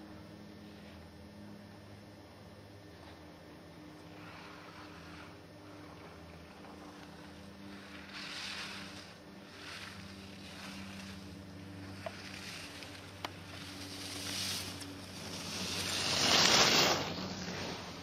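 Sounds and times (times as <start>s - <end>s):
steady low hum: 0.0s - 18.0s
skis swooshing on snow: 4.1s - 5.4s, 6.1s - 18.0s.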